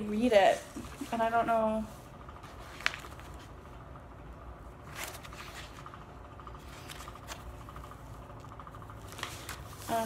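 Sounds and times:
paper and plastic rustle: 9.0 - 10.0.

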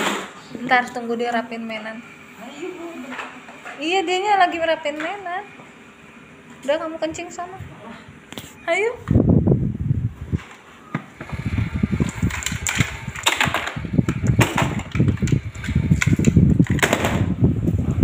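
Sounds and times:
plastic toys rattling: 12.0 - 17.1.

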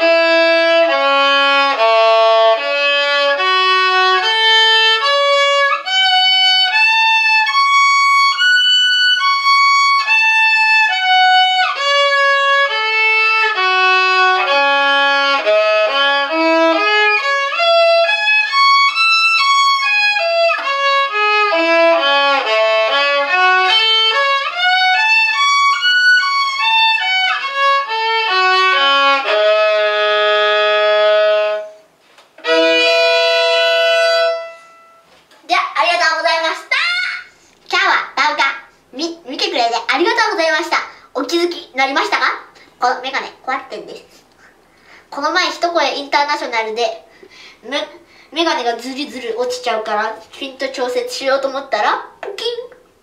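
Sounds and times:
violin playing scales: 0.0 - 35.2.

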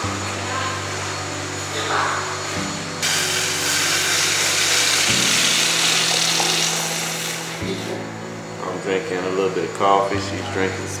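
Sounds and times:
hot liquid pouring into cup: 3.0 - 7.9.

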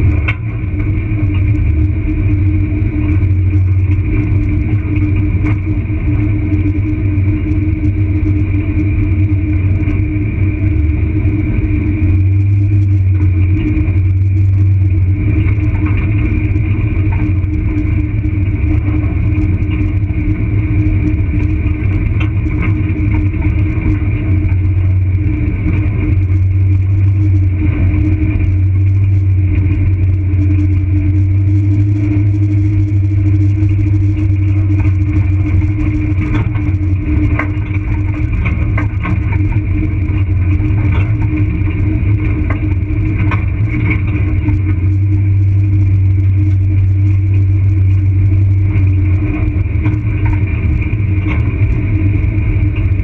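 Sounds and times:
vehicle engine drone: 0.0 - 53.0
clicks and rattles: 35.9 - 41.5.

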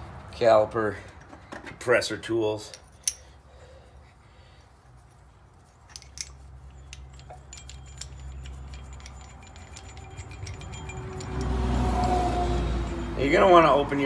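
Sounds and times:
metallic tool clicks and clinks: 2.6 - 3.4, 5.8 - 13.7.

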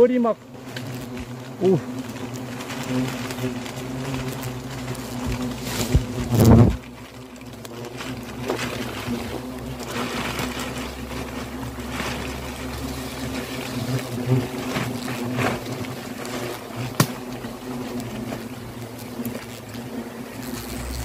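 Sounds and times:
hornets buzzing: 0.0 - 21.0
rustling: 0.4 - 21.0
sharp snap: 17.0 - 17.2.

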